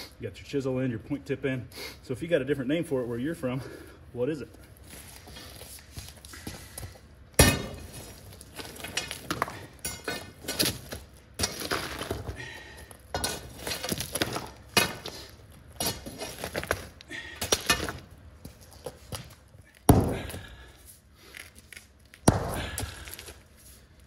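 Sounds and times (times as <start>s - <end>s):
steel bar striking concrete: 7.4s - 8.0s, 9.0s - 10.8s
concrete chunks clinking: 7.4s - 20.7s.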